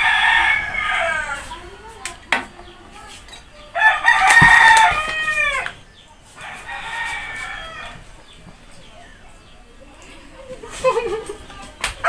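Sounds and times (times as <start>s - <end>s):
rooster crowing: 0.0s - 1.4s, 3.8s - 5.8s, 6.4s - 8.0s.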